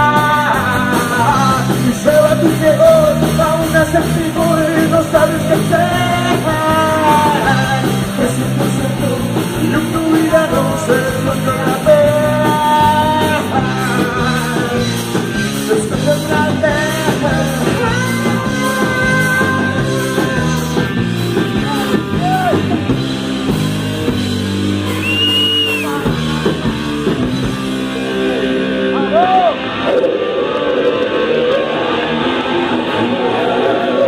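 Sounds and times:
person singing: 0.0s - 22.8s
rock band playing live: 0.0s - 34.0s.

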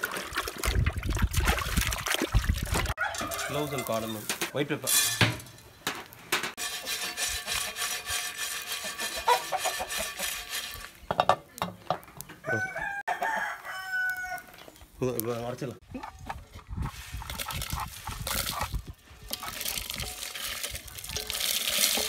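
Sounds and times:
rooster crowing: 3.0s - 3.9s, 12.4s - 14.6s
chicken clucking: 8.8s - 10.4s.

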